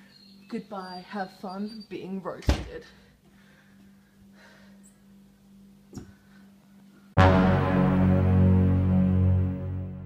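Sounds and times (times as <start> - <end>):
faint steady hum: 0.0 - 7.2
held chord of low notes: 7.2 - 10.0.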